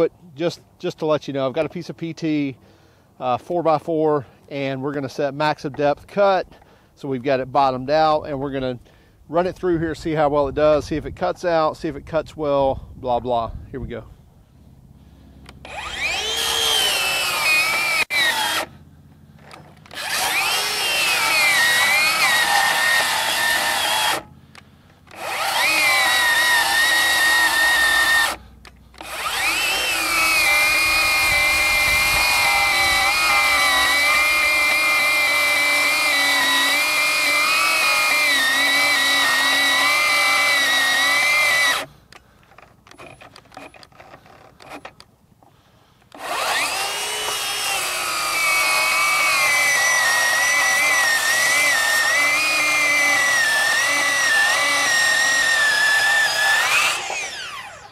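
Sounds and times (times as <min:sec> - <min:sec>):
circular saw cutting wood: 0:15.6 - 0:18.8, 0:19.4 - 0:24.3, 0:25.0 - 0:41.9, 0:42.9 - 0:44.9, 0:46.1 - 0:57.9.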